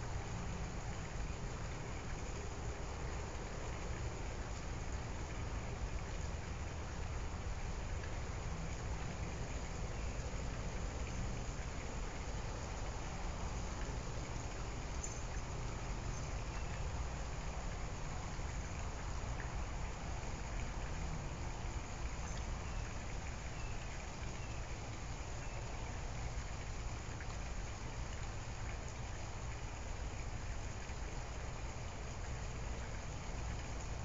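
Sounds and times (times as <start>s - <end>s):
background hiss: 0.0s - 34.0s
faint light ticks: 7.7s - 34.0s.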